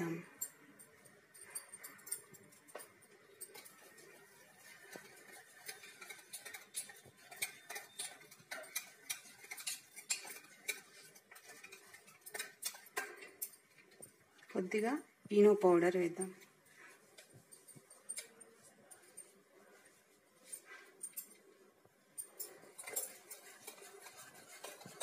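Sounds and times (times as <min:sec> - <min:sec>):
whisk clicking in metal bowl: 0:01.8 - 0:14.0, 0:22.4 - 0:25.0.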